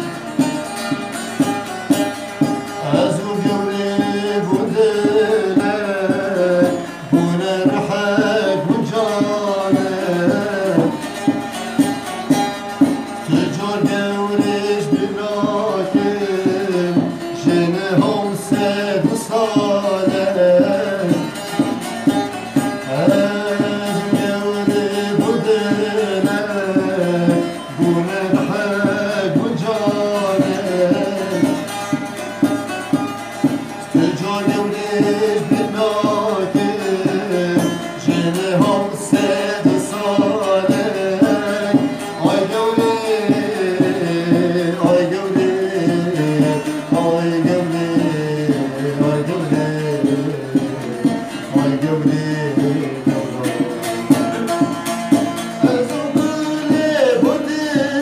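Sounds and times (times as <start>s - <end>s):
lute strummed rapidly: 0.0s - 58.0s
man singing folk melody: 0.0s - 58.0s.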